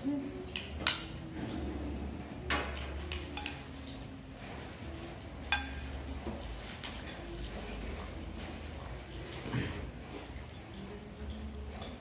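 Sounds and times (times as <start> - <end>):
spoons and dishes clinking: 3.0 - 4.0, 5.4 - 6.0, 10.5 - 12.0.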